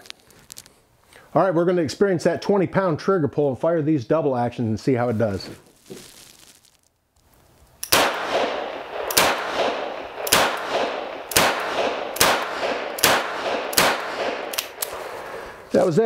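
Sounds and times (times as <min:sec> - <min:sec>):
revolver shots with ringing echo: 0:07.8 - 0:15.3.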